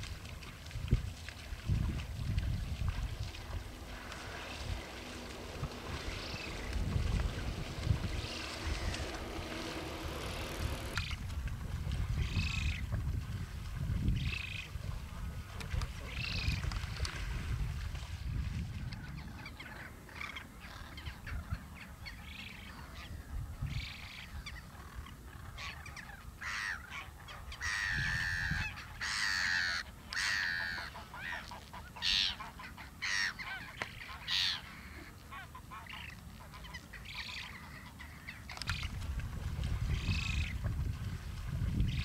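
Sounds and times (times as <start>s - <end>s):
low rumble: 0.6s - 15.6s
geese honking: 3.4s - 11.1s, 25.6s - 38.9s.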